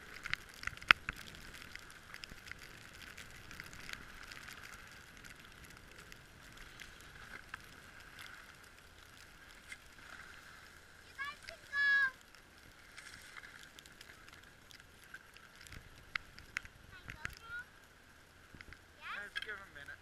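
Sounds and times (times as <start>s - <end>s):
skis scraping over snow: 0.0s - 11.8s.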